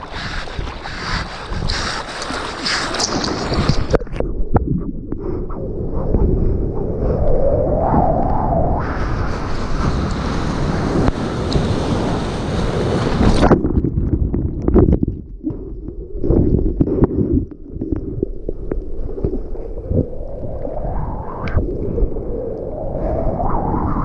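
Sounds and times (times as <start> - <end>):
water bubbling: 0.0 - 7.0, 12.8 - 23.7
muffled underwater turbulence: 0.0 - 24.0.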